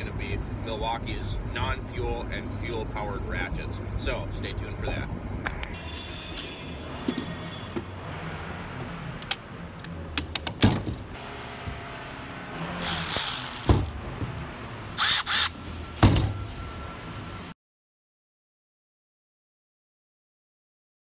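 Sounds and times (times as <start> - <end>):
tools clinking and knocking on concrete: 13.5 - 14.0.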